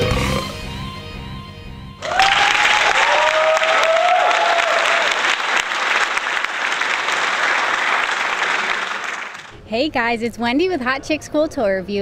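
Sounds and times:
people whooping: 2.0s - 9.4s
crowd applauding and cheering: 2.0s - 9.6s.

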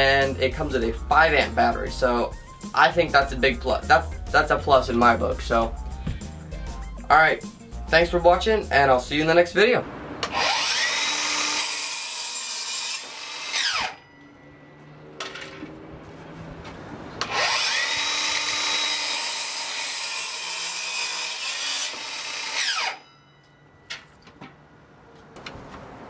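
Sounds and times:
miter saw cutting wood: 10.2s - 14.4s, 17.2s - 23.1s
saw blade whine: 10.2s - 15.1s, 17.2s - 23.6s.

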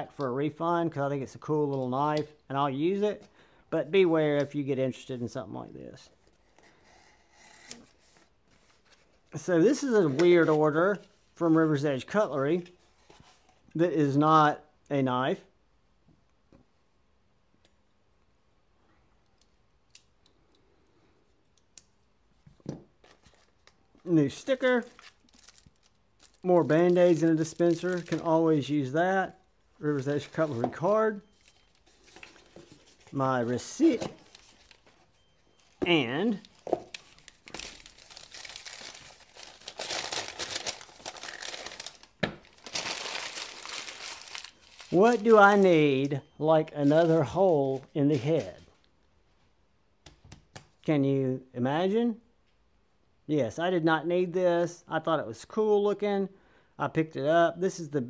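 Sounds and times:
paper packaging crinkling: 23.0s - 28.7s, 29.8s - 46.1s, 46.7s - 48.6s.

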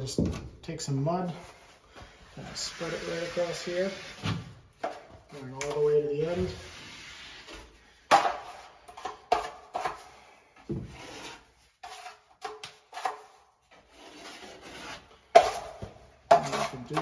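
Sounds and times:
taping knife scraping: 11.0s - 17.0s.

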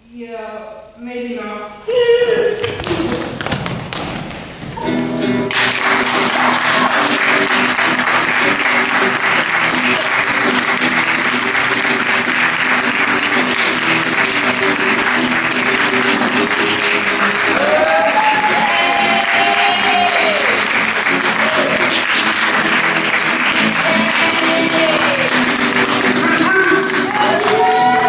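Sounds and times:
music: 4.6s - 28.0s
audience applauding: 5.4s - 28.0s
crowd whooping: 5.9s - 8.6s, 16.6s - 22.4s, 23.6s - 28.0s.

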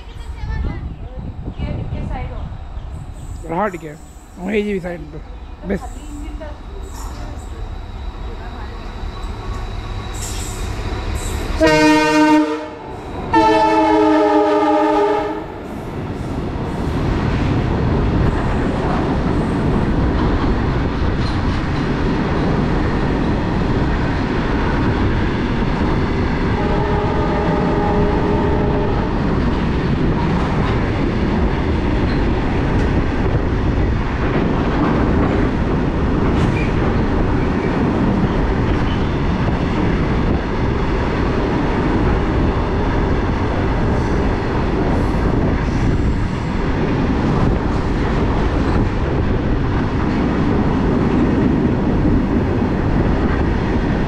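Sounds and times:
freight train wheels rumbling: 0.0s - 54.0s
locomotive horn blasts: 11.6s - 15.5s, 26.6s - 29.1s.

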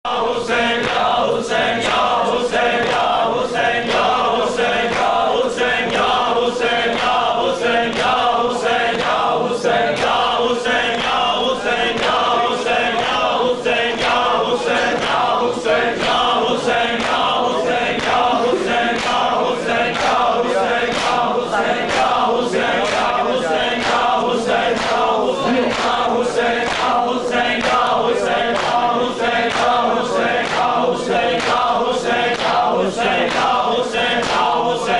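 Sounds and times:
lead reciter: 0.1s - 34.9s
men chanting a lament in chorus: 0.1s - 34.9s
rhythmic hand-slaps on chests: 0.1s - 34.9s.

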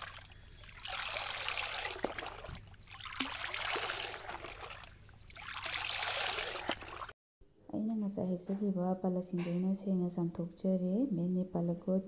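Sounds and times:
tap water splashing on leaves: 0.0s - 7.1s.

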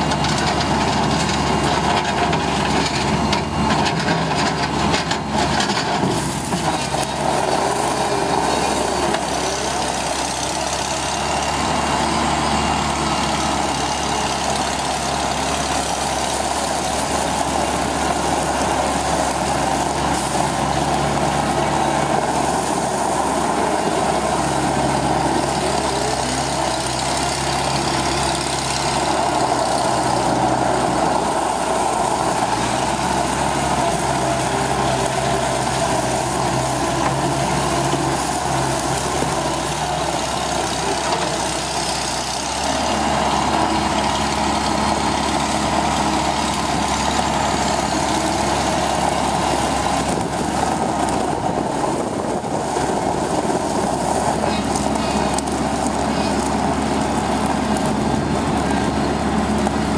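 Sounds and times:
skid-steer loader engine running: 0.0s - 59.9s.

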